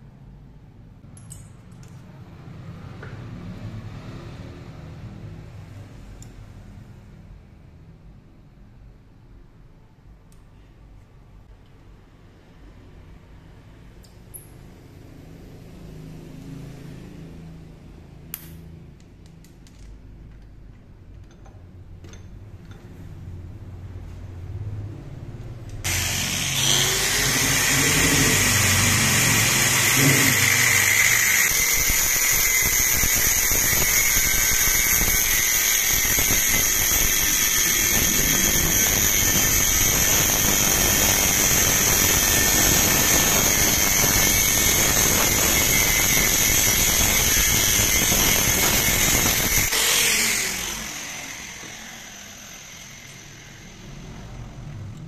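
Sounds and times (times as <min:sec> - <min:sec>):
angle grinder cutting steel: 0:25.8 - 0:54.3.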